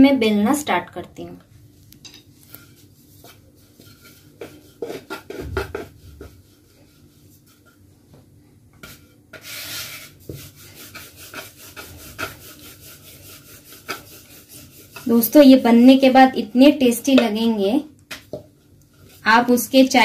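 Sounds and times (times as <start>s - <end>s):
rolling pin on wooden board: 2.7s - 15.2s.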